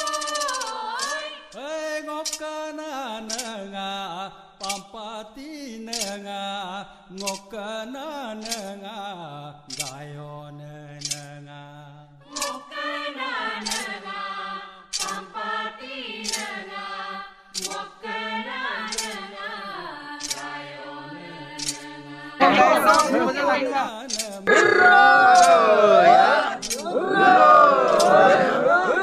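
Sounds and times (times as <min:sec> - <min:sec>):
voices chanting prayer: 0:00.0 - 0:05.1, 0:12.2 - 0:29.0.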